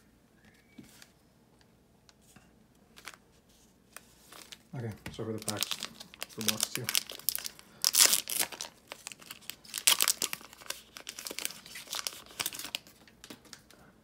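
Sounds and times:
foil wrapper tearing and crinkling: 5.3s - 13.0s.

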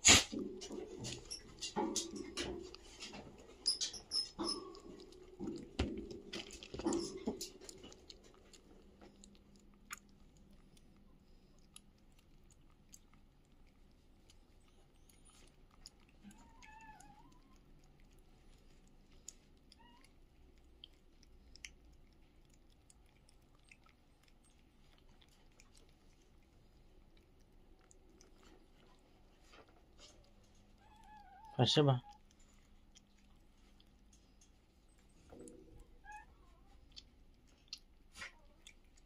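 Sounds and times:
cats chewing and licking: 0.0s - 39.0s
faint wavering cat cry: 30.8s - 32.2s.

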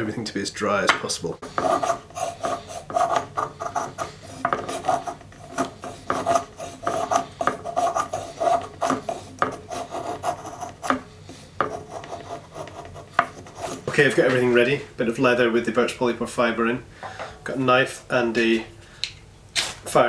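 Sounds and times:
knife shaving wood: 1.4s - 14.1s.

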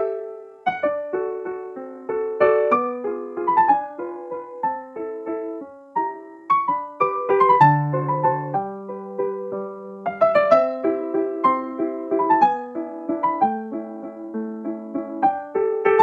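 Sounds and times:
slow piano music: 0.0s - 16.0s.

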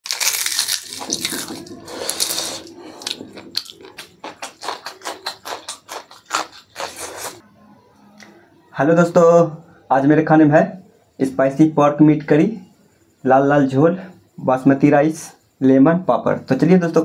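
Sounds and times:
biting and chewing chilli: 0.0s - 7.4s.

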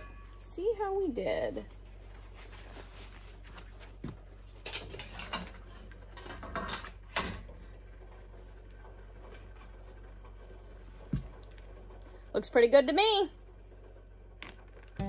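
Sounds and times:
steady low hum: 0.0s - 15.0s
metal clicks and clanks: 4.6s - 7.4s.

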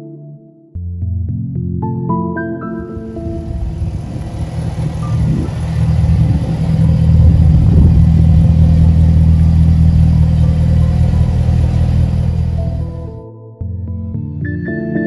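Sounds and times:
car engine rumbling: 2.8s - 13.2s.

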